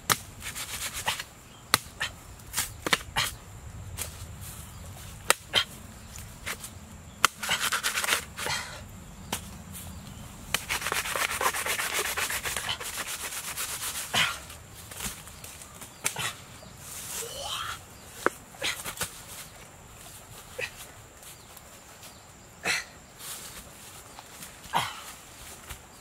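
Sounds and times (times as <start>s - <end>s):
knife scraping bamboo: 0.1s - 3.4s, 5.3s - 8.7s, 10.5s - 15.2s.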